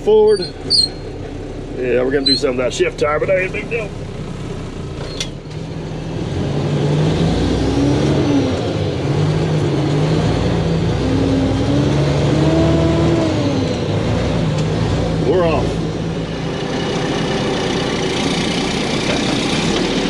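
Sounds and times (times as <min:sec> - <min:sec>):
diesel truck engine shifting gears: 0:00.0 - 0:20.0.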